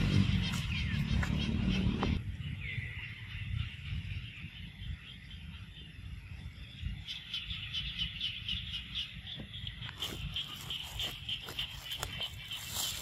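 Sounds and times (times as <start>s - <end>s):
rapid high-pitched chirping: 7.0s - 13.0s.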